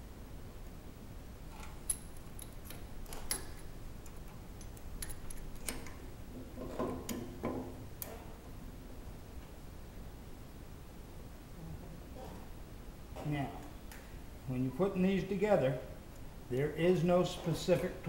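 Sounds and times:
allen wrench clicking on bolts: 1.5 - 6.0.

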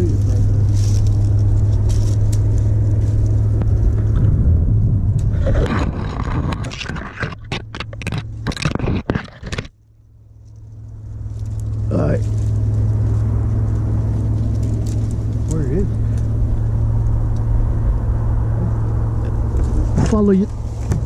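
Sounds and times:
tree branches scraping and snapping: 0.0 - 4.2, 5.2 - 9.8, 10.4 - 17.6
steady low hum: 0.0 - 21.0.

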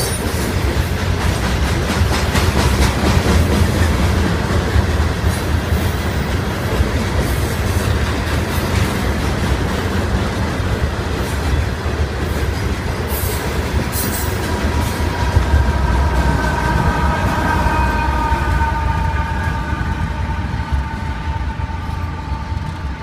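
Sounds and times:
train wheels rumbling on rail: 0.0 - 23.0
steady tones: 12.9 - 23.0.

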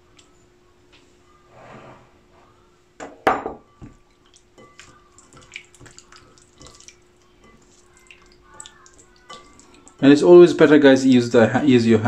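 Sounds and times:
hands squelching meat in marinade: 4.2 - 10.1.

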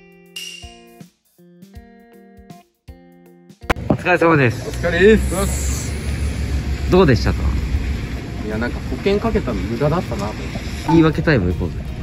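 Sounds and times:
brief swishing noise: 4.7 - 6.6.

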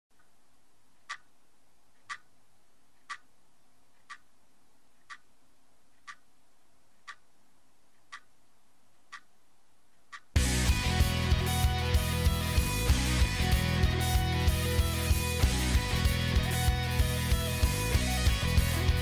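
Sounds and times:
alarm clock ticking: 1.1 - 1.3, 8.1 - 8.3
rock song with guitar and drums: 10.4 - 19.0.

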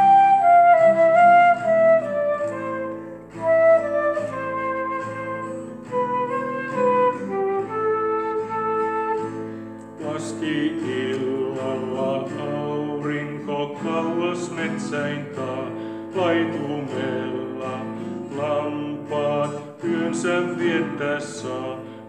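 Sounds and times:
flute playing slow melody: 0.0 - 9.6
acoustic guitar: 0.0 - 22.0.

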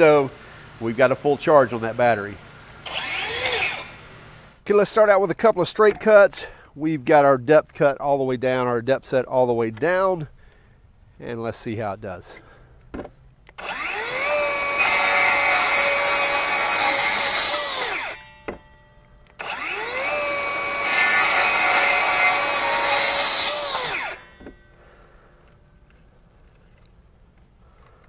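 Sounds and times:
circular saw cutting wood: 0.0 - 4.6, 13.6 - 18.7, 19.3 - 24.7.

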